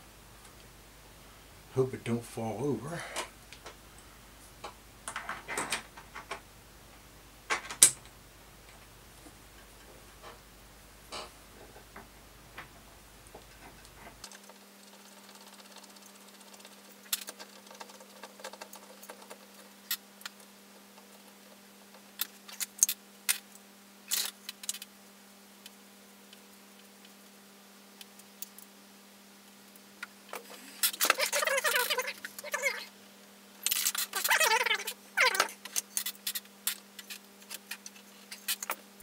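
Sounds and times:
metal parts clicking and clinking: 24.1s - 24.9s, 33.6s - 38.8s.

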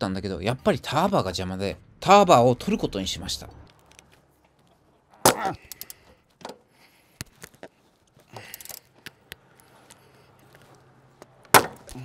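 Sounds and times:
hand tools clicking and clinking: 3.6s - 6.7s, 7.3s - 10.0s
sharp metal clunk: 11.5s - 11.9s.

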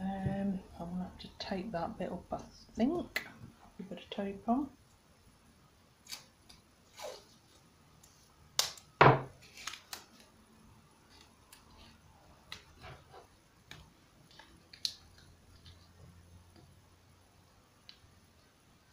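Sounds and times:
masking tape ripping off roll: 6.0s - 7.4s, 9.4s - 10.3s.

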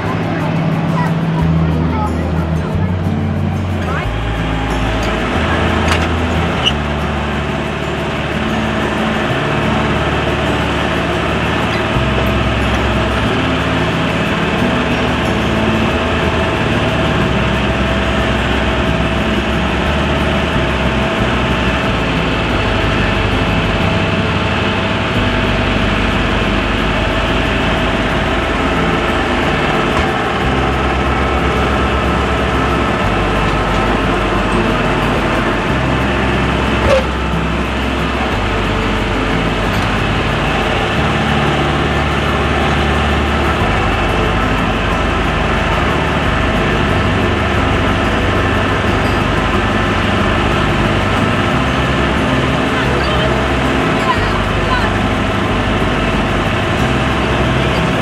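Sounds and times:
thin whine: 0.0s - 58.0s
tractor engine running: 0.0s - 58.0s.

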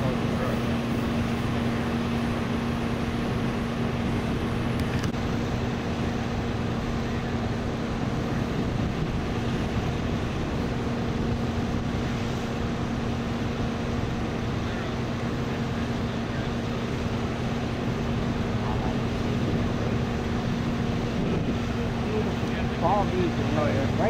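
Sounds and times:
constant rushing noise: 0.0s - 24.0s
vehicle engine idling: 0.0s - 24.0s.

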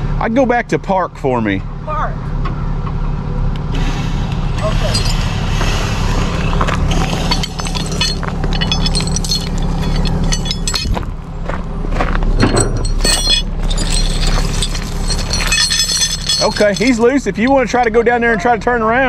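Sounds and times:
vehicle engine idling: 0.0s - 19.0s
tow chain and hooks clinking: 4.6s - 5.6s, 6.3s - 11.3s, 12.3s - 17.9s.

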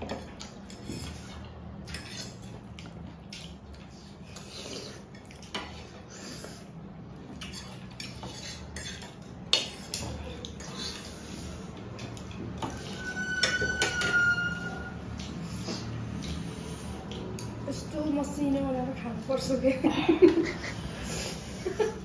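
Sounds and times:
brief ringing tone: 12.8s - 15.0s.

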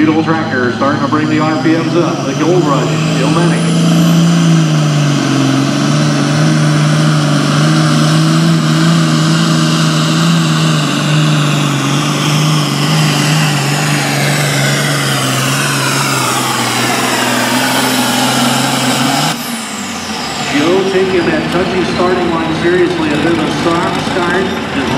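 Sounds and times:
diesel tractor engine under load: 0.0s - 24.9s.

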